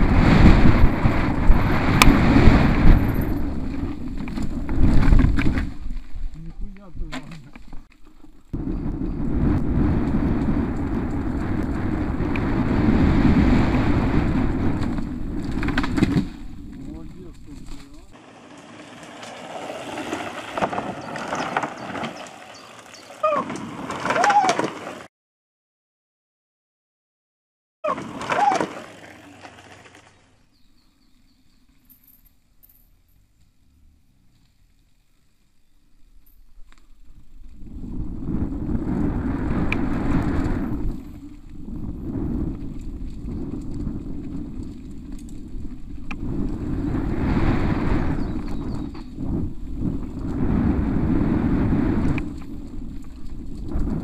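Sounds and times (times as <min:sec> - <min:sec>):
wind buffeting microphone: 0:00.0 - 0:07.1, 0:08.5 - 0:18.2, 0:36.9 - 0:54.0
bike tyres rumbling on dirt: 0:00.0 - 0:25.1, 0:27.8 - 0:54.0
bike tyres rattling over wooden slats: 0:00.1 - 0:09.2, 0:13.3 - 0:25.1.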